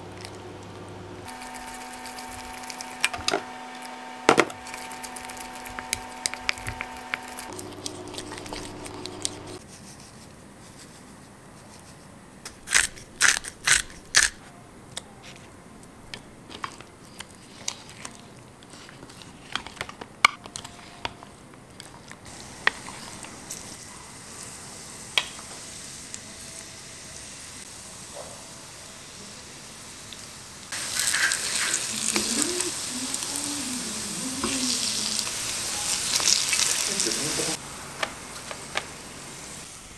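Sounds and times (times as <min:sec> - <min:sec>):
frying sizzle in hot oil: 0:00.0 - 0:07.6, 0:22.3 - 0:39.9.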